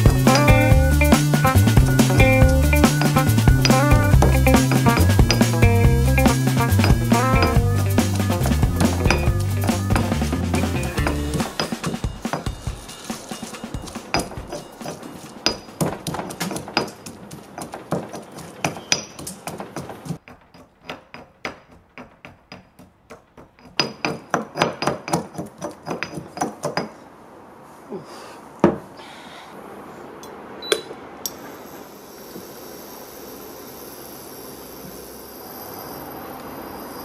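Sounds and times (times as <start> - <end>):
stone pestle pounding in mortar: 1.8 - 12.8.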